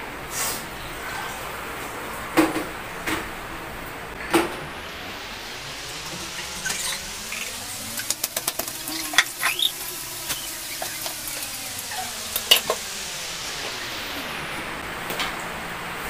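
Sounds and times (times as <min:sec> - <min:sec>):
steady hiss: 0:04.6 - 0:16.0.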